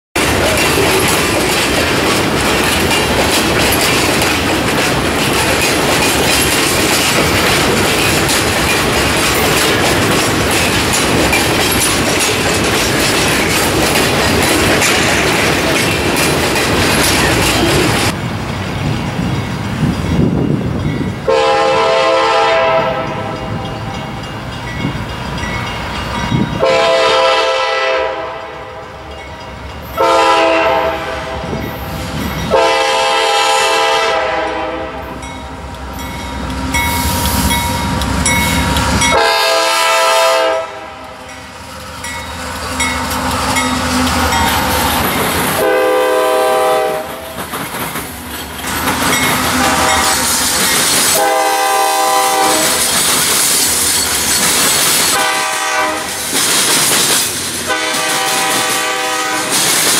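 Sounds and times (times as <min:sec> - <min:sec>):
freight car wheels rolling on rail: 0:00.2 - 0:59.9
locomotive air horn: 0:21.3 - 0:23.6, 0:26.6 - 0:28.9, 0:30.0 - 0:31.7, 0:32.5 - 0:35.2, 0:39.1 - 0:41.2, 0:45.6 - 0:47.3, 0:49.5 - 0:50.4, 0:51.1 - 0:52.8, 0:55.1 - 0:56.1, 0:57.7 - 0:59.6.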